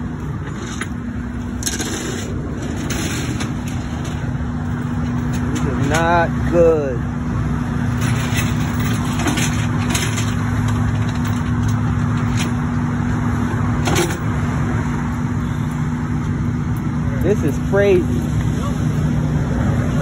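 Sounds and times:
large truck engine idling: 0:00.0 - 0:20.0.

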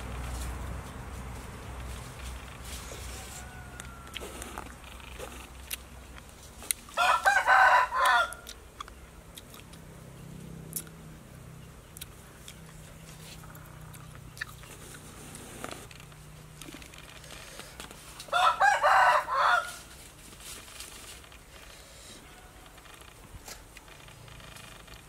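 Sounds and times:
faint background noise: 0:00.0 - 0:25.0
rooster crowing: 0:02.7 - 0:04.7, 0:07.0 - 0:08.5, 0:18.2 - 0:19.9, 0:22.2 - 0:22.8.

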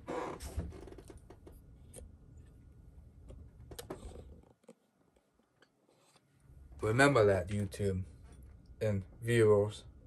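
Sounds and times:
low background hum: 0:00.0 - 0:10.0.

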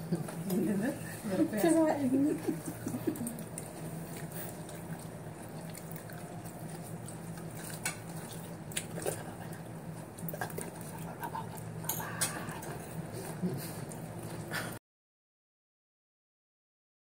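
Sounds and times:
low steady hum: 0:00.0 - 0:14.8.

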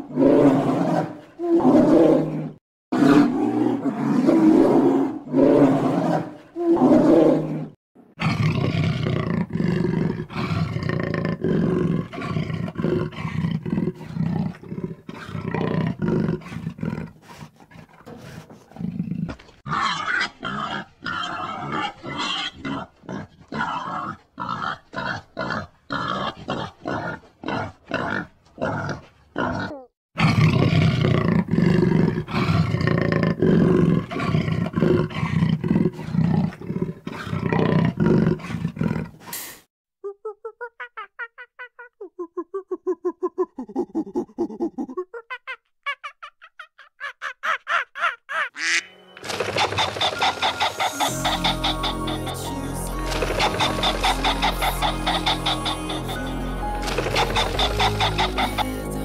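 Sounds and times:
tiger growling and roaring: 0:00.0 - 0:39.4, 0:49.2 - 0:59.0.

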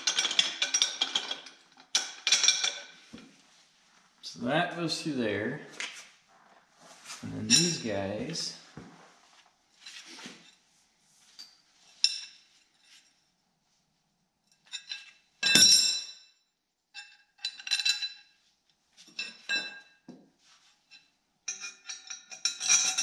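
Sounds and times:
steel bars clinking and ringing: 0:00.0 - 0:03.0, 0:07.5 - 0:08.0, 0:17.0 - 0:18.3, 0:20.9 - 0:23.0.

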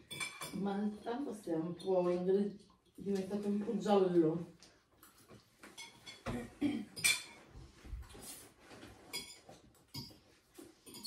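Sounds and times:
cutlery clinking on plates: 0:00.0 - 0:00.6, 0:05.0 - 0:11.0.

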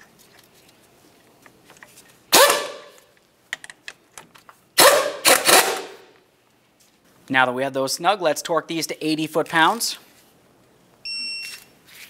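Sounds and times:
pneumatic air ratchet: 0:04.8 - 0:06.0.

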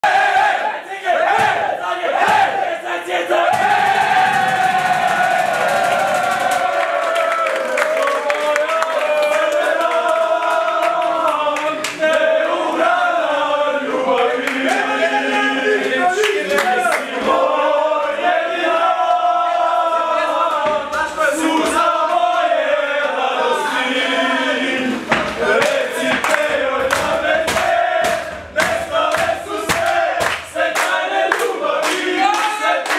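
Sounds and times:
men chanting together: 0:00.0 - 0:05.7, 0:09.0 - 0:32.9
hand clapping: 0:25.2 - 0:32.9.

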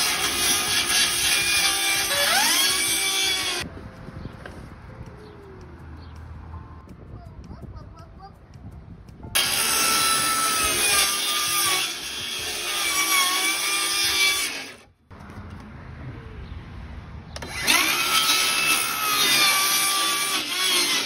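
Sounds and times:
circular saw cutting plywood: 0:00.0 - 0:03.6, 0:09.4 - 0:14.9, 0:17.4 - 0:21.0.

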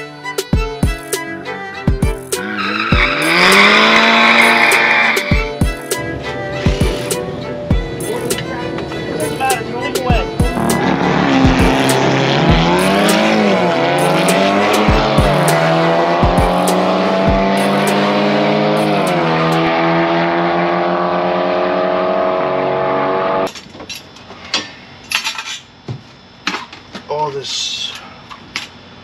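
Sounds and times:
car engine at full throttle: 0:02.3 - 0:05.3, 0:06.1 - 0:23.5.

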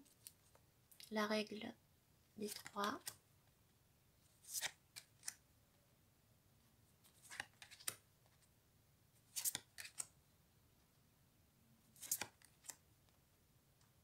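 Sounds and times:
cards swishing and tapping: 0:04.4 - 0:05.4, 0:07.0 - 0:08.0, 0:09.3 - 0:10.1, 0:12.0 - 0:12.8.

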